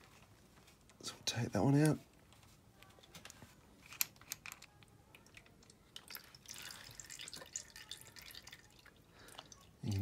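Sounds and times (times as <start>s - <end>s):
oil dribbling into a pan: 5.9s - 10.0s.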